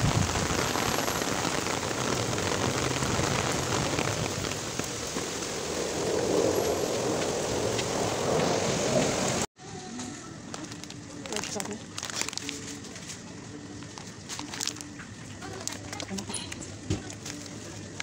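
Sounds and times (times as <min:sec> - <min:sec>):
heavy rain on pavement: 0:00.0 - 0:09.5.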